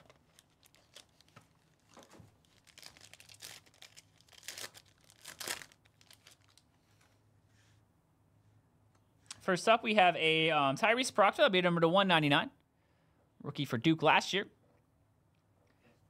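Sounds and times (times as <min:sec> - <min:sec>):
foil pack crinkling and tearing: 0:00.0 - 0:06.7.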